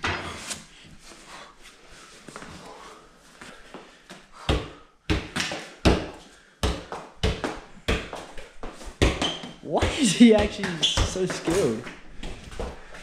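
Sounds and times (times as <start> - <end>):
soccer ball thuds: 4.4 - 12.8.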